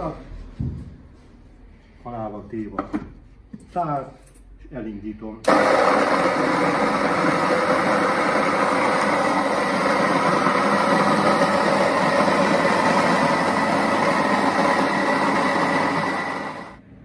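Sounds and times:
electric grain mill grinding: 0:05.5 - 0:16.8.

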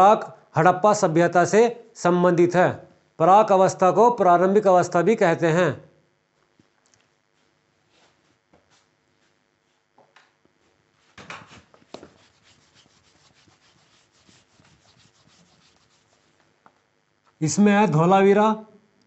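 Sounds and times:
duster rubbing on whiteboard: 0:11.0 - 0:16.4.

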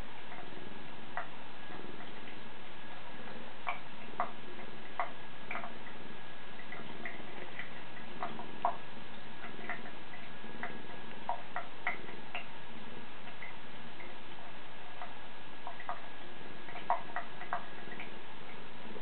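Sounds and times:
water dripping into sink: 0:00.2 - 0:03.0, 0:03.6 - 0:18.8.

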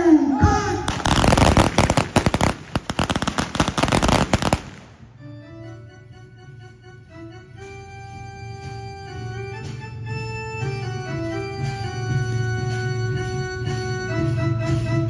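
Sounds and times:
rapid blank rifle shots: 0:00.9 - 0:05.0.

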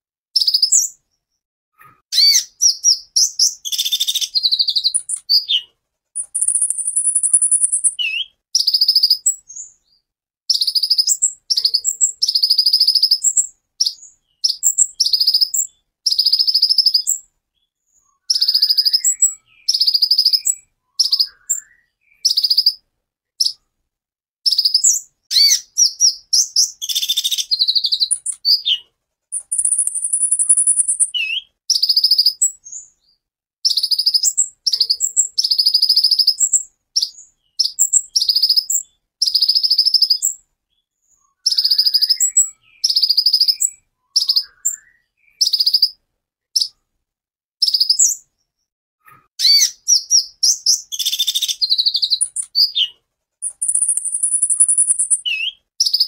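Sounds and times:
bird singing high rapid trills: 0:06.2 - 0:09.4, 0:29.4 - 0:32.6, 0:49.4 - 0:56.0.

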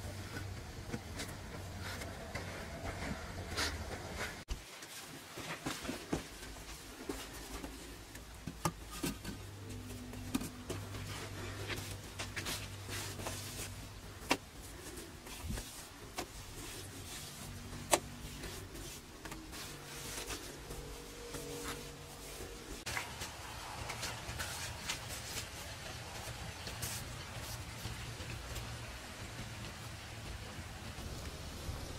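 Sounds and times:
stiff brush sweeping cement floor: 0:09.0 - 0:28.7.

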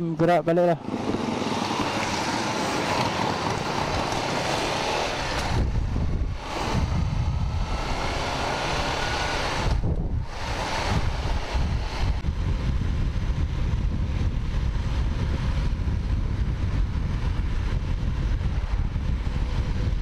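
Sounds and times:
motorcycle engine running: 0:00.8 - 0:20.0
wind buffeting microphone: 0:00.8 - 0:20.0.

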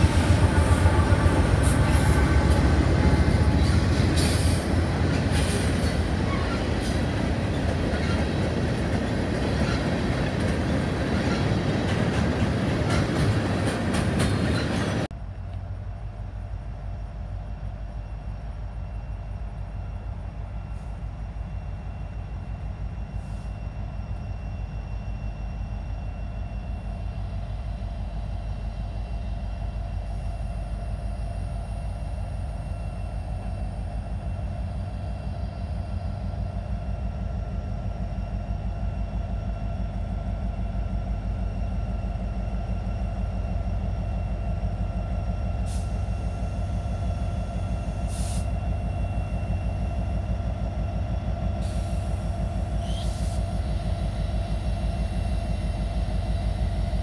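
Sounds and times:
wheels squealing on rails: 0:00.0 - 0:15.1, 0:44.1 - 0:57.0
diesel locomotives running: 0:00.0 - 0:57.0
distant locomotive rumble: 0:00.0 - 0:57.0.

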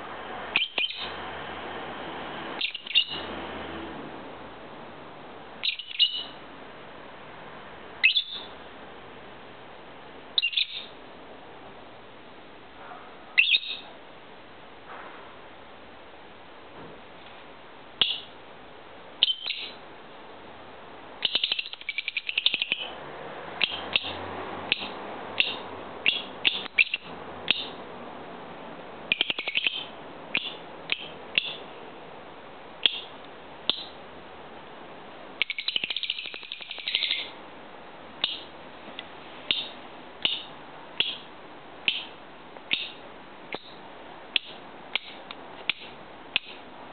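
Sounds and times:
lovebird chirping: 0:00.5 - 0:01.1, 0:02.6 - 0:03.3, 0:05.6 - 0:06.4, 0:08.0 - 0:08.6, 0:10.4 - 0:11.0, 0:13.4 - 0:13.9, 0:18.0 - 0:18.3, 0:19.2 - 0:19.8, 0:21.2 - 0:23.0, 0:23.6 - 0:27.8, 0:29.1 - 0:31.7, 0:32.8 - 0:34.0, 0:35.4 - 0:37.4, 0:38.2 - 0:38.5, 0:39.5 - 0:46.6
lovebird rapid chattering: 0:00.5 - 0:01.1, 0:02.6 - 0:03.2, 0:05.6 - 0:06.4, 0:19.2 - 0:19.8, 0:21.2 - 0:23.0, 0:23.6 - 0:27.8, 0:29.1 - 0:31.7, 0:32.8 - 0:34.0, 0:35.4 - 0:37.4, 0:38.2 - 0:38.5, 0:39.5 - 0:46.6.

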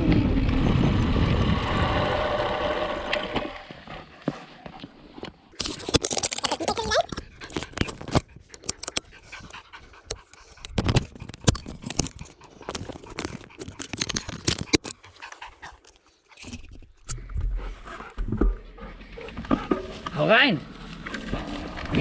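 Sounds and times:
dog panting hard: 0:07.1 - 0:16.4.

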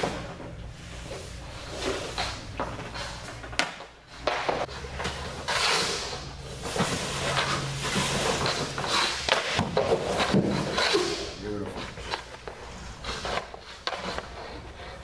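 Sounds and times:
skate blades scraping ice: 0:04.2 - 0:15.0
knocks of pads and stick: 0:07.9 - 0:11.3.

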